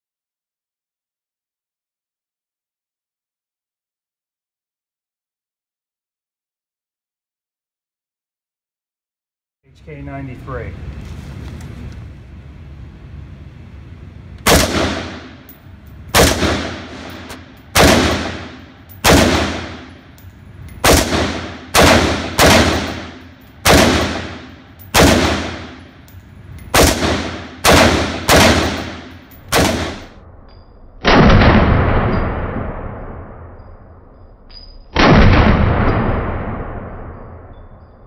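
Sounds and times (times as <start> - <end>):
rifle shots echoing indoors: 14.4 - 38.0.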